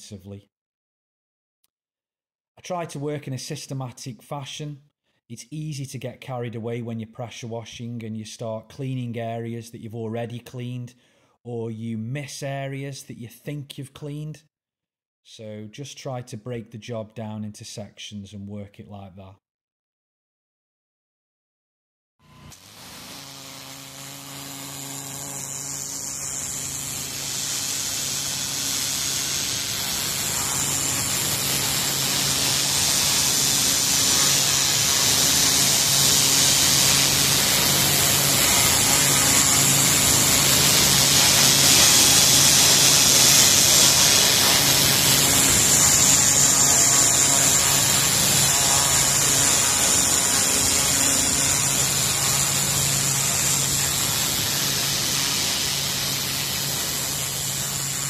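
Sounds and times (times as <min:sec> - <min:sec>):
pressure washer humming: 0:22.2 - 0:58.0
water spray hissing on paving: 0:22.8 - 0:38.4, 0:39.9 - 0:46.3, 0:51.3 - 0:58.0.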